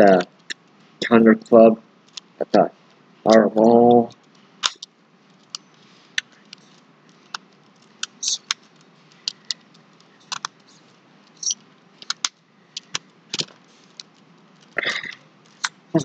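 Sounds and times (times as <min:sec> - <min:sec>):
plastic tiles scraping: 0:05.4 - 0:14.8.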